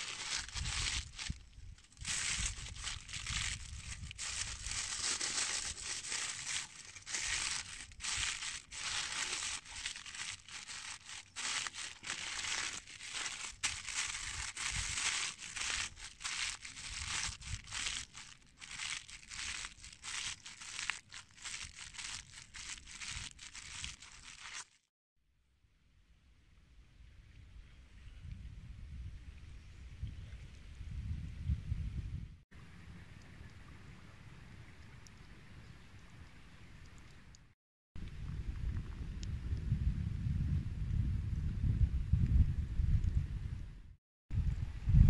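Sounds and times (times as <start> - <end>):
aluminium foil crinkling: 0.0 - 24.8.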